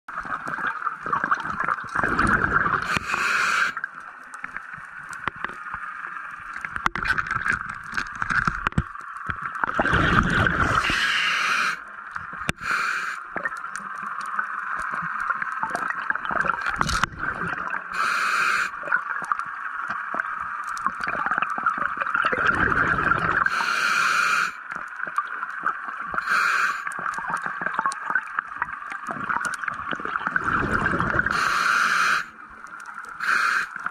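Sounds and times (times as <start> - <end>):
exhaled bubbles gurgling: 0.1 - 33.9
regulator valve hissing: 10.8 - 11.8, 18.0 - 18.8, 23.5 - 24.6, 31.3 - 32.3, 33.2 - 33.8.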